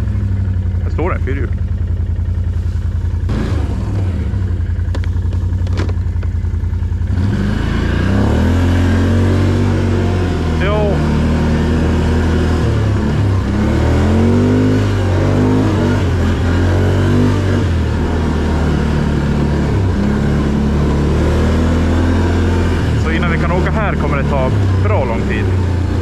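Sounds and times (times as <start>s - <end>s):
quad engine revving: 0.0s - 26.0s.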